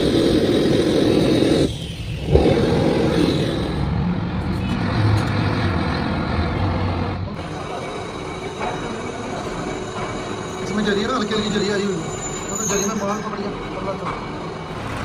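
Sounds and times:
gas blowtorch roaring: 0:00.0 - 0:10.7.

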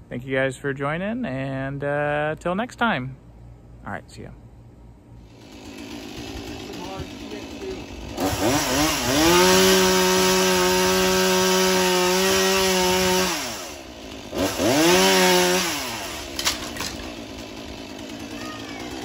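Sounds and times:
chainsaw revving and cutting: 0:05.2 - 0:19.0.

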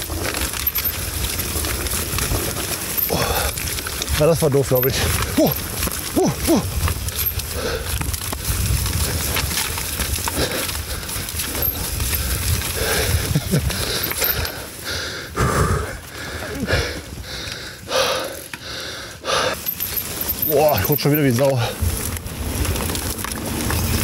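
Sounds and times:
low rumble of bike ride: 0:00.0 - 0:24.0
person breathing hard: 0:03.1 - 0:04.1, 0:06.2 - 0:09.3, 0:10.1 - 0:20.2.

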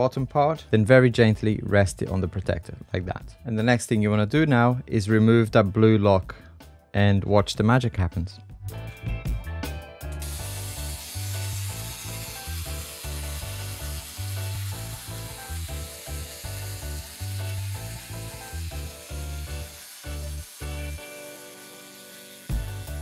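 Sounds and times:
steady high hiss: 0:10.2 - 0:23.0.

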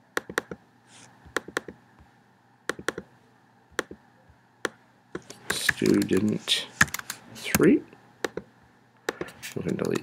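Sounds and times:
mouse and keyboard clicks: 0:00.2 - 0:00.6, 0:01.3 - 0:01.8, 0:02.7 - 0:03.1, 0:04.6 - 0:08.5, 0:09.1 - 0:10.0.

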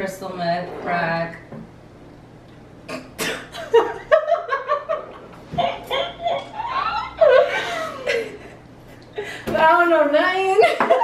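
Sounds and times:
young women laughing and giggling: 0:03.6 - 0:08.6, 0:10.4 - 0:11.0.

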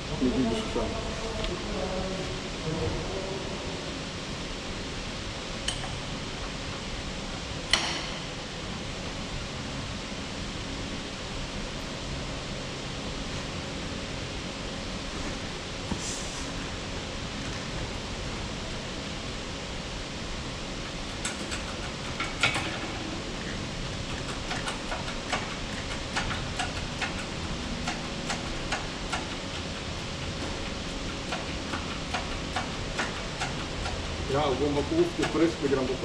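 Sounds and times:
steady background hiss: 0:00.0 - 0:36.0.

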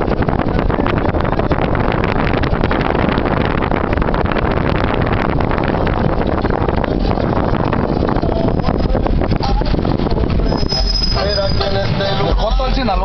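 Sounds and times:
car rumbling on road: 0:00.0 - 0:13.0
passing traffic: 0:00.0 - 0:13.0
wind rushing over microphone: 0:00.0 - 0:13.0.

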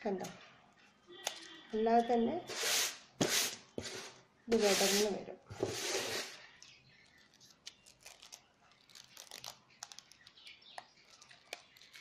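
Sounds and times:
papery flower clicks and crackles: 0:06.5 - 0:12.0.

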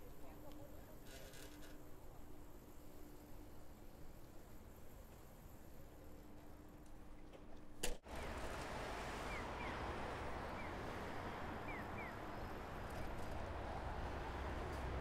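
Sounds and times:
street noise rumble: 0:08.0 - 0:15.0.

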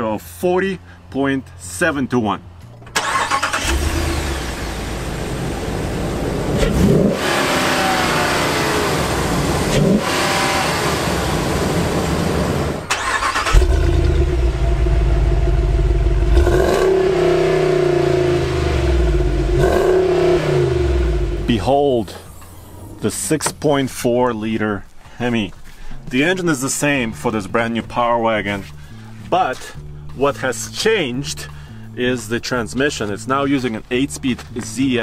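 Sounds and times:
engine running with throttle blips: 0:02.6 - 0:23.2.

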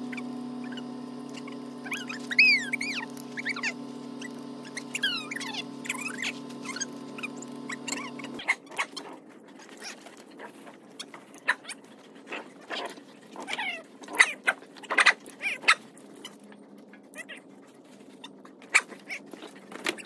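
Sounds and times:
dog whining: 0:00.0 - 0:09.1.

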